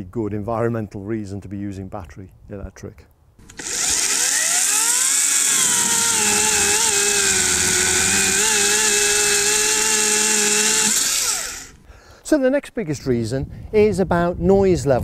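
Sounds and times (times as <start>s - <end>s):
chainsaw cutting log: 3.4s - 11.8s.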